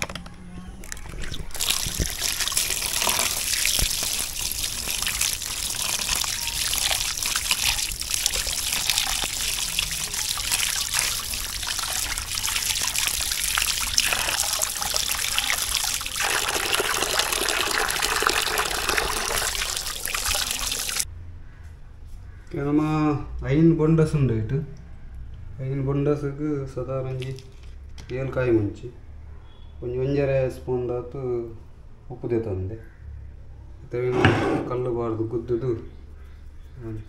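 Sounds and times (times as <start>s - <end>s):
running water splashing: 0.9s - 21.1s.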